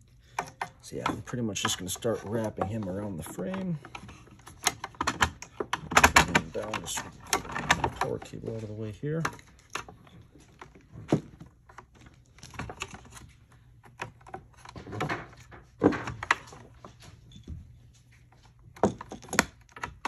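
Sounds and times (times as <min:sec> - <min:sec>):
cable handling taps and rustles: 0:00.0 - 0:20.0.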